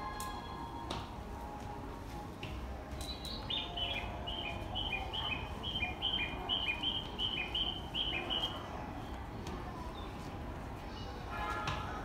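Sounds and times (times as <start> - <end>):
bird chirping: 3.0 - 8.6.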